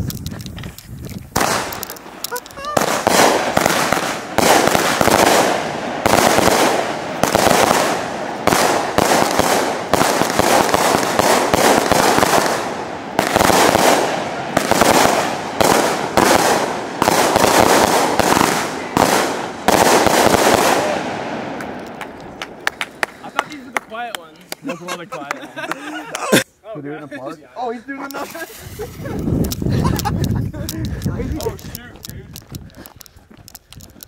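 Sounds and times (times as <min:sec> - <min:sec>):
firework bangs: 0:01.3 - 0:23.1.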